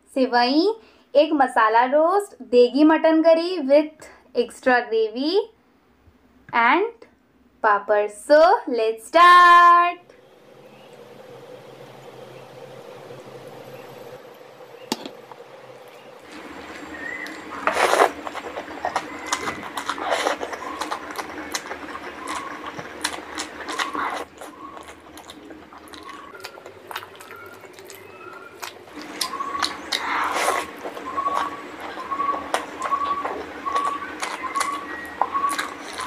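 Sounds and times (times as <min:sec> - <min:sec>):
hand squishing rice and gravy: 0:15.9 - 0:36.0
mouth chewing and smacking: 0:16.0 - 0:36.0.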